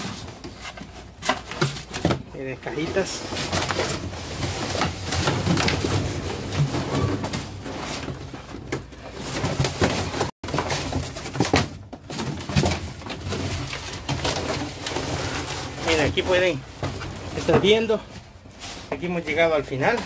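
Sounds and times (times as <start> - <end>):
cardboard boxes rustling in dumpster: 0.0 - 20.0.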